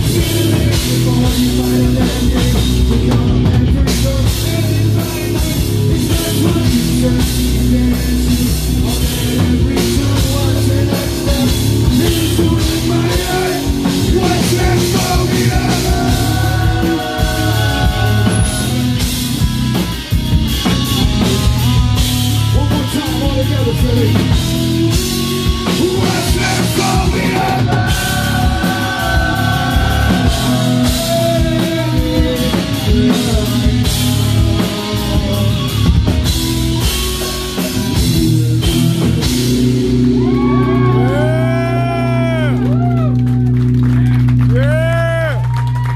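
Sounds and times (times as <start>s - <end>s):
man singing: 0.0s - 19.1s, 22.5s - 36.1s, 38.0s - 39.7s, 40.6s - 42.6s
distorted electric guitar: 0.0s - 45.9s
heavy drum kit: 0.0s - 45.9s.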